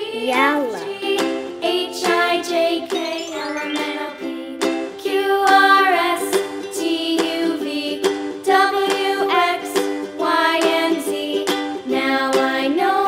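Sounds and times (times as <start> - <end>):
person singing a children's song: 0.0 - 13.0
instrumental backing with beat: 2.8 - 5.8.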